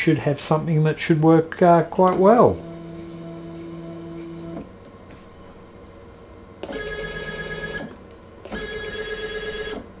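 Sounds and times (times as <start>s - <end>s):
stepper motor whine: 2.4s - 4.7s.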